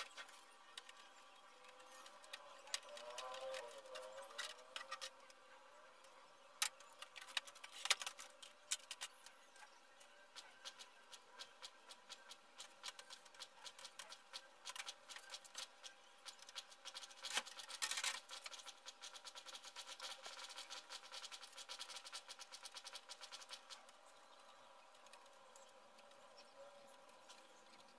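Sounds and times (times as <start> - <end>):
tools clicking and clattering: 0.0 - 5.4.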